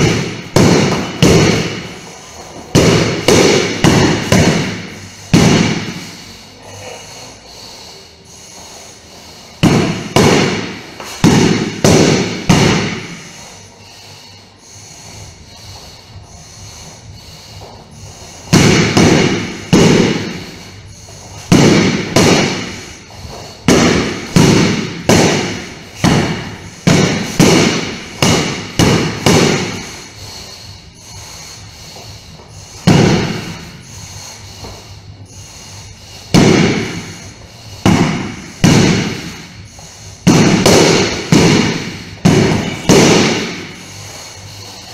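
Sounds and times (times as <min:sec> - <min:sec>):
sword striking punching bag: 0:00.0 - 0:01.9, 0:02.7 - 0:06.1, 0:09.6 - 0:13.2, 0:18.5 - 0:20.4, 0:21.4 - 0:30.0, 0:32.8 - 0:33.7, 0:36.3 - 0:39.5, 0:40.2 - 0:43.8.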